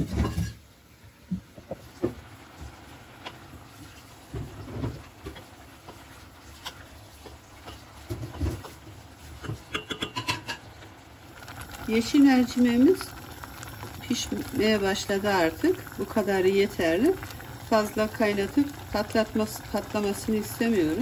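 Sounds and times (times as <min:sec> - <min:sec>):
wooden spoon stirring lentils in pot: 0:01.7 - 0:09.8
spoon knocking against pot: 0:09.4 - 0:10.6.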